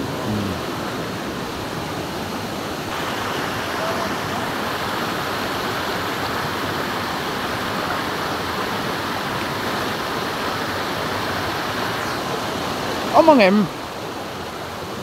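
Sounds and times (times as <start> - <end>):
flowing river water: 0.0 - 15.0.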